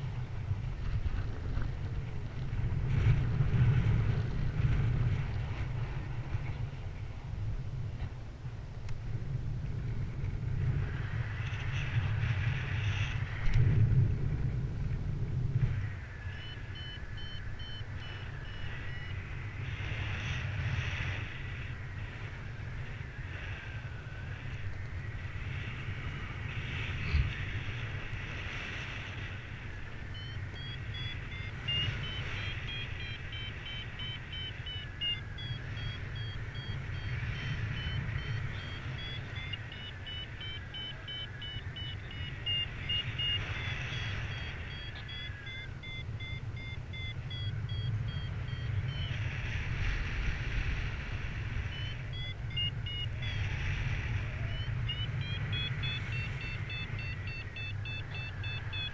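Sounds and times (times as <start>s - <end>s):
wind rumble on microphone: 0.0s - 58.9s
variometer beeping: 16.3s - 20.4s, 30.0s - 49.6s, 51.3s - 58.9s.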